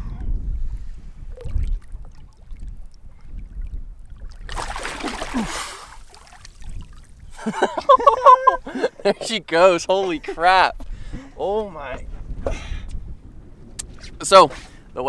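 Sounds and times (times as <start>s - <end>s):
fish splashing at surface: 4.3s - 7.0s.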